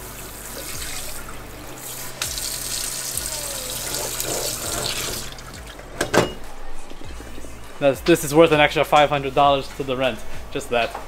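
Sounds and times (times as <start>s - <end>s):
tap water running into sink: 0.0s - 5.8s.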